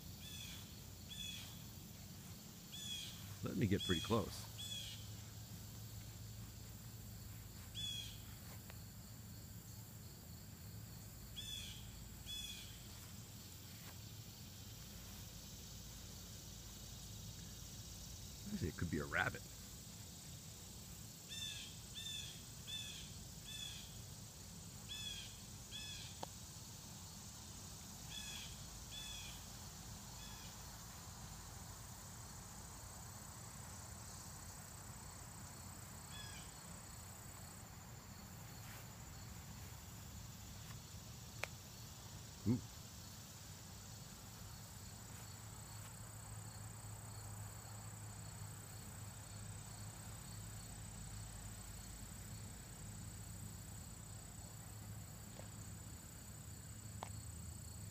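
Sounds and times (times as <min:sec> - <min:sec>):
faint outdoor ambience: 0:00.0 - 0:57.9
small bird chirping: 0:00.2 - 0:01.6, 0:02.7 - 0:05.3, 0:07.6 - 0:08.3.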